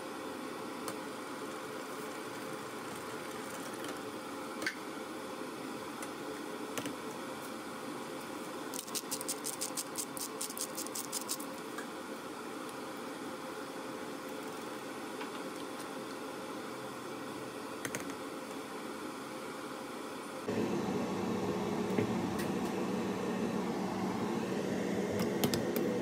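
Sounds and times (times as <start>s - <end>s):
pepper mill grinding: 8.7s - 11.6s.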